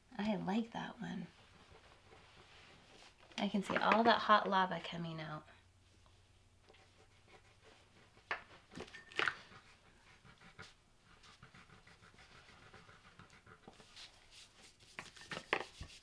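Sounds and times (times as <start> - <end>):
crayon scribbling on paper: 6.7 - 8.7, 9.6 - 16.0.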